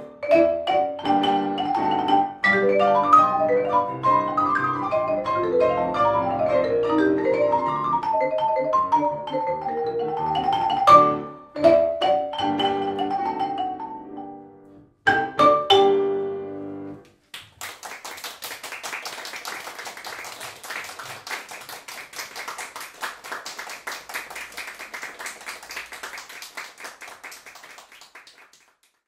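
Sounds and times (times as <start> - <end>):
marimba and piano chords: 0.0 - 16.8
audience applauding: 17.3 - 29.0.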